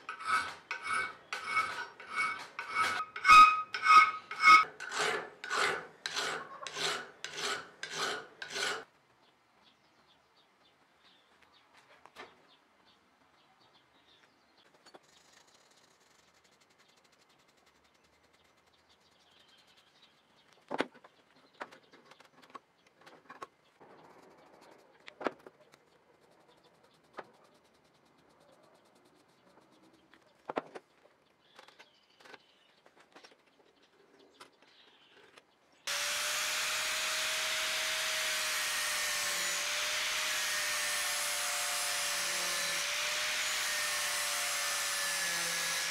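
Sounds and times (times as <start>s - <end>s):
angle grinder grinding metal: 0.0s - 8.9s, 35.9s - 45.9s.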